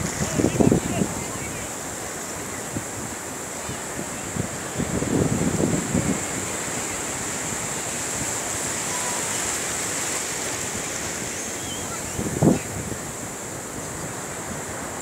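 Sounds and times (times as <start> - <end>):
surf washing up beach: 0.0 - 15.0.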